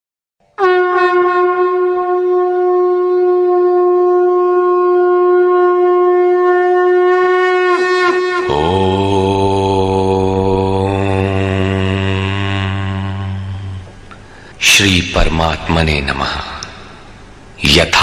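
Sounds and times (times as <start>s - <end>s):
conch shell blown: 0.6s - 14.1s
low chant: 7.8s - 18.0s.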